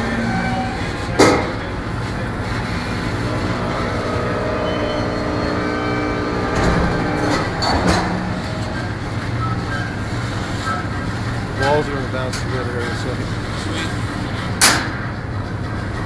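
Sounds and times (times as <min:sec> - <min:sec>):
machinery drone with whining tones: 0:00.0 - 0:16.0
loud noisy swells: 0:01.7 - 0:12.2.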